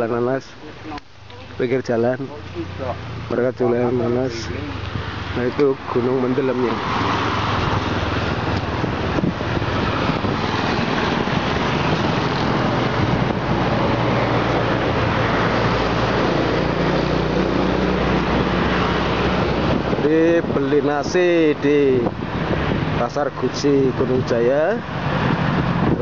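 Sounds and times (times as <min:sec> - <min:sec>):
motorcycle engines humming: 0:00.6 - 0:20.6
steady rushing noise: 0:00.8 - 0:26.0.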